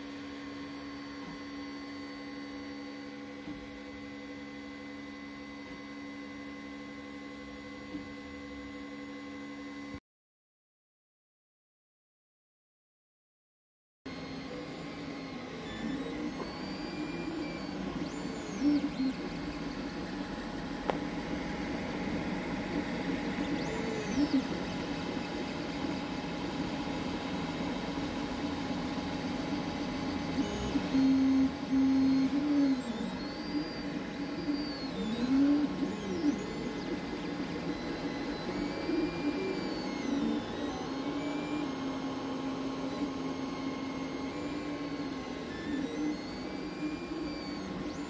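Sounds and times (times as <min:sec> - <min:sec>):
printer fans humming: 0:14.1 - 0:48.0
stepper motor whine: 0:14.1 - 0:48.0.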